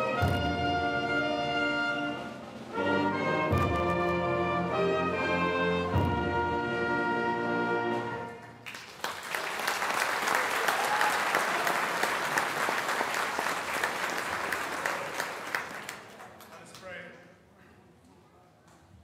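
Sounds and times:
audience applause: 8.4s - 16.8s.

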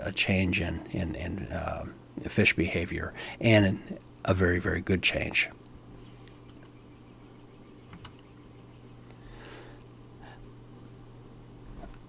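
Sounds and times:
low electrical hum: 0.0s - 12.0s
faint clicks: 5.6s - 6.8s, 7.9s - 8.3s
soft breath: 9.1s - 10.5s.

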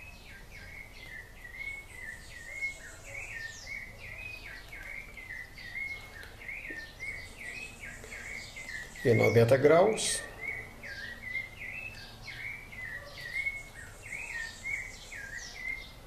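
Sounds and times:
bird chirping: 0.0s - 16.0s.

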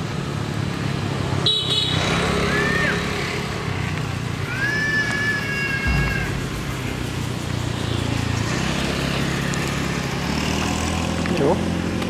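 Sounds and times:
high calls: 5.1s - 7.9s.

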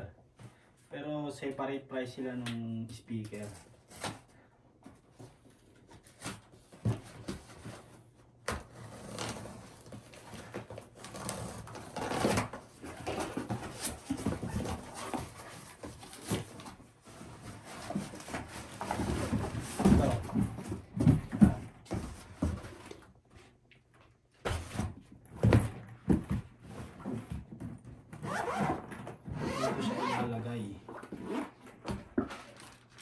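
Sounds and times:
packaging rustling: 31.6s - 33.0s.

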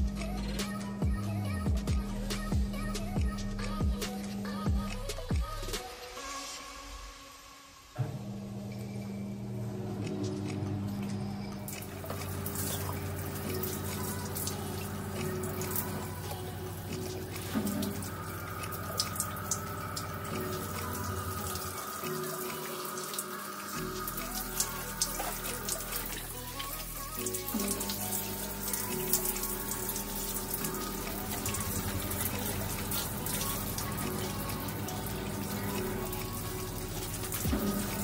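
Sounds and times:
music playing: 0.0s - 8.0s, 9.6s - 38.0s
shower water splashing: 10.1s - 38.0s.

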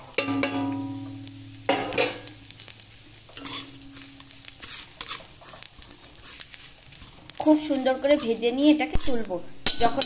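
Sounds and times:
spices sizzling in oil: 0.0s - 10.0s
spatula knocking on pan: 0.2s - 1.0s
pan ringing: 0.2s - 2.3s
metal spatula scraping pan: 3.3s - 10.0s.

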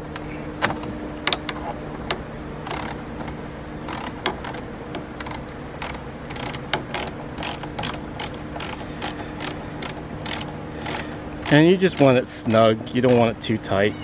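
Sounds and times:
socket ratchet clicking: 2.6s - 13.3s.

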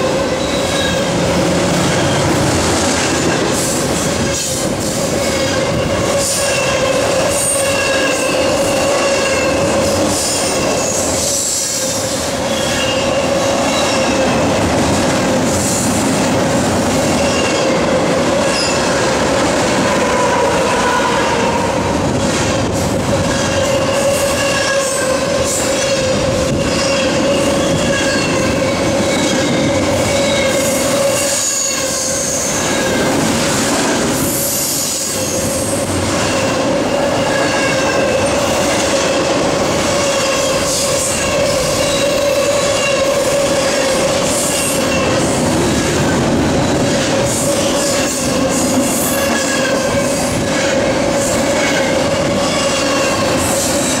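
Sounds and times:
train wheel squeal: 0.0s - 1.2s, 3.3s - 14.5s, 17.0s - 19.0s, 23.2s - 33.1s, 34.2s - 39.2s, 39.9s - 46.2s, 46.9s - 54.0s
freight train wheels rumbling: 0.0s - 54.0s.

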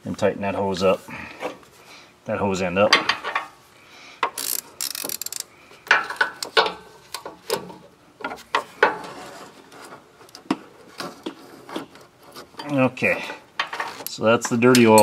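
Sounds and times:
rustling scrape: 9.0s - 12.6s
wrench clinking on metal fitting: 14.5s - 15.0s.

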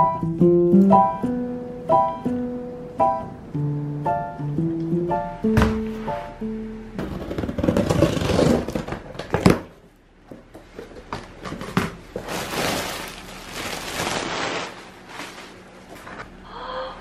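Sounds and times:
plastic packaging rustling: 11.4s - 16.3s.

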